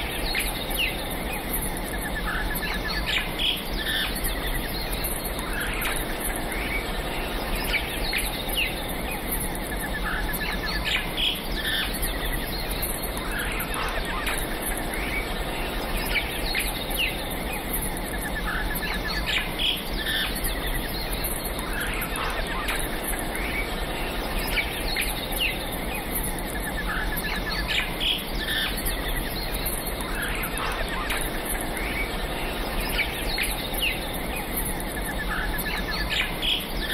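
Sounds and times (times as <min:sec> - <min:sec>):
insects chirring: 0:00.0 - 0:36.9
steady background hiss: 0:00.0 - 0:36.9
birds chirping and calling: 0:10.0 - 0:36.9.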